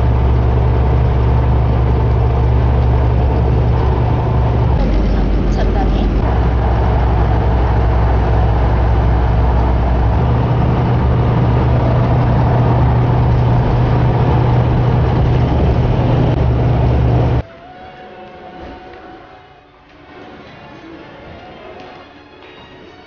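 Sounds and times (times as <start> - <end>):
car engine and road drone: 0.0 - 17.4.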